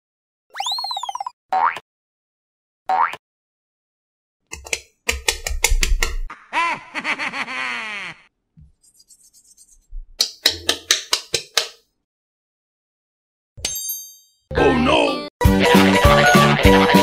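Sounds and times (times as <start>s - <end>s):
cartoon clicks and knocks: 4.5s - 6.3s, 10.2s - 11.8s.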